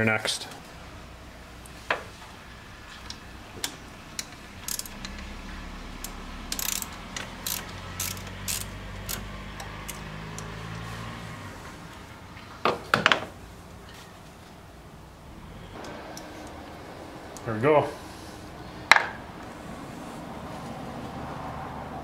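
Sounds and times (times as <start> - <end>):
socket ratchet clicking: 3.6 - 5.3, 6.0 - 10.5.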